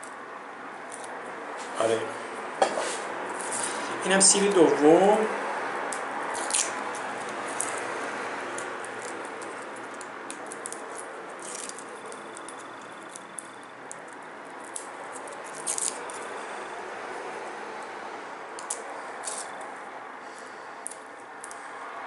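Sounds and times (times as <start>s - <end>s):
garlic skins crackling: 5.9s - 16.6s, 18.6s - 21.7s.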